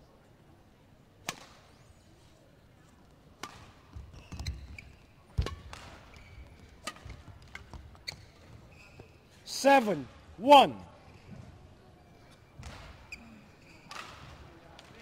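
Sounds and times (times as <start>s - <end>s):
rackets hitting shuttlecock: 1.2s - 1.7s, 3.4s - 4.6s, 5.3s - 7.8s, 13.8s - 15.0s
shoe squeaks: 4.1s - 5.2s, 6.1s - 6.6s, 8.0s - 9.3s, 13.0s - 14.0s.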